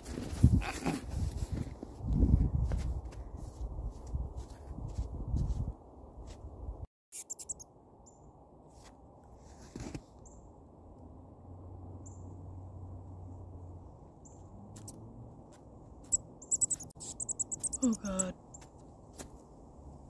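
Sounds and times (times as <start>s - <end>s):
snow scuffling: 0.0s - 2.0s, 8.8s - 10.1s
mole squeaking: 7.2s - 7.6s, 16.0s - 18.8s.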